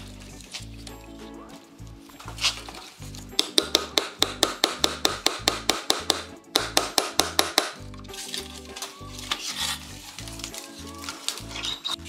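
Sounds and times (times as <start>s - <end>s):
music with bass line: 0.0s - 12.0s
hammer tapping on wood: 3.4s - 7.8s.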